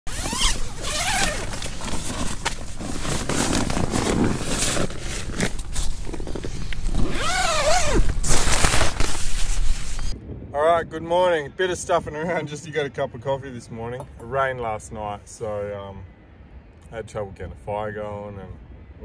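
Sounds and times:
tent fabric rustling: 0:00.1 - 0:10.2
tent zipper unzipping: 0:00.1 - 0:10.2.

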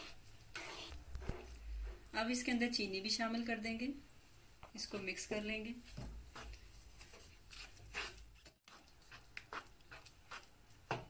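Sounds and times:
wooden spatula scraping a pan: 0:00.0 - 0:02.2, 0:05.8 - 0:11.0.

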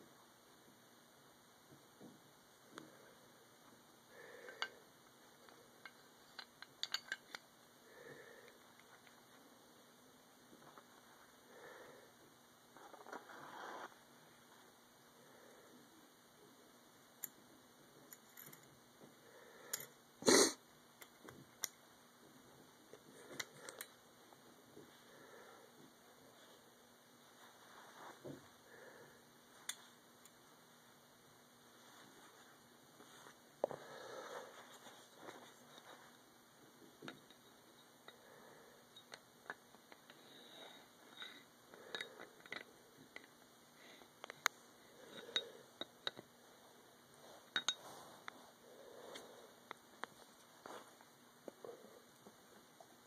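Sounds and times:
faint metal clicks and taps: 0:05.4 - 0:07.4.

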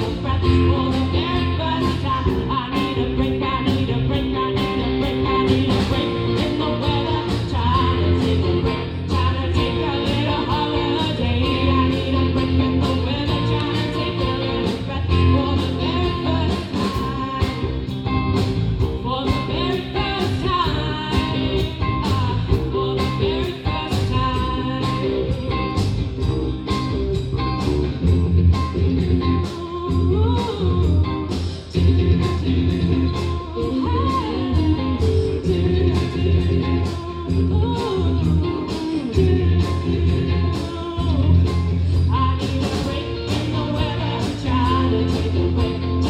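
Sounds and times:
live band through speakers: 0:00.0 - 0:46.0
person singing: 0:00.0 - 0:46.0.

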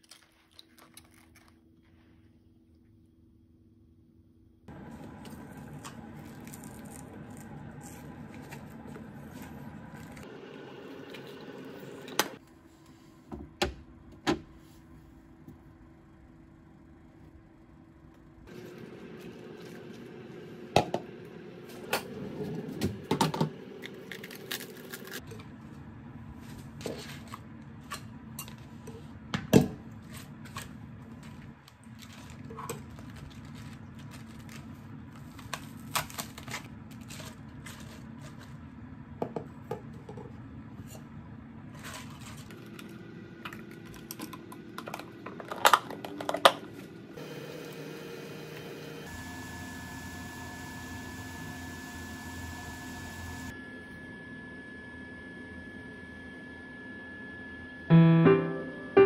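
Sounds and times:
low steady hum: 0:00.0 - 0:59.0.

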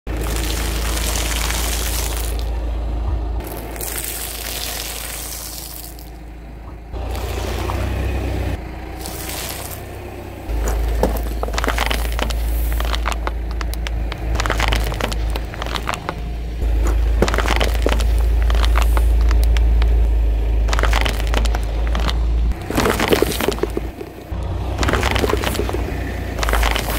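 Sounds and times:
tyre crushing popcorn and plastic: 0:00.1 - 0:02.6, 0:03.4 - 0:06.2, 0:07.0 - 0:08.0, 0:09.0 - 0:26.9
low rumble: 0:00.1 - 0:26.9.

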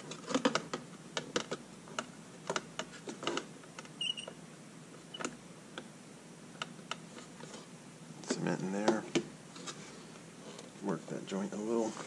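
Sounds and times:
brief squeak: 0:04.0 - 0:04.4.

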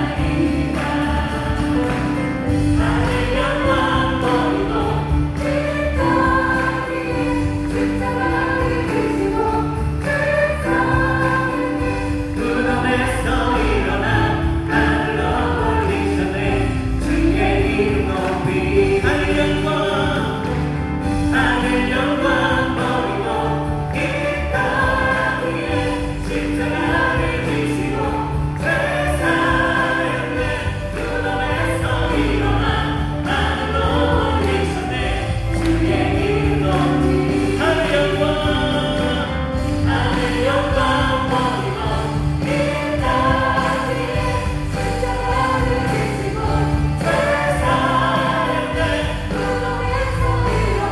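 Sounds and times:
acoustic guitar: 0:00.0 - 0:50.9
bass: 0:00.0 - 0:50.9
drums: 0:00.0 - 0:50.9
group singing in unison: 0:00.0 - 0:50.9
keyboard: 0:00.0 - 0:50.9.

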